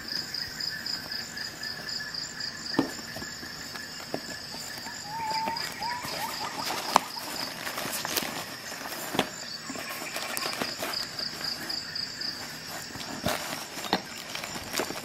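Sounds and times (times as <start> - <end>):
fabric rustling: 2.8 - 15.0
fingers scratching webbing: 3.8 - 15.0.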